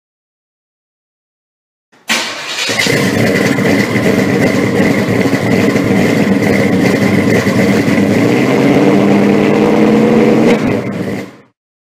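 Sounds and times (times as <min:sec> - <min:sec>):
loud car engine running: 0:02.1 - 0:11.6.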